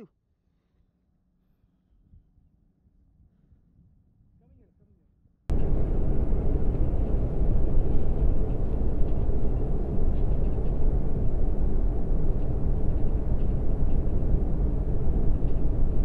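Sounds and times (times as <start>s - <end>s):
car road and wind noise: 5.5s - 16.0s.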